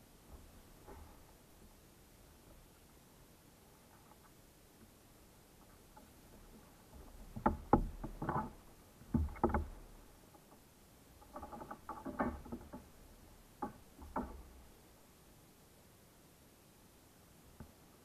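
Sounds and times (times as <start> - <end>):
knocks and taps on plastic kayak: 6.9 - 10.0, 13.6 - 14.6.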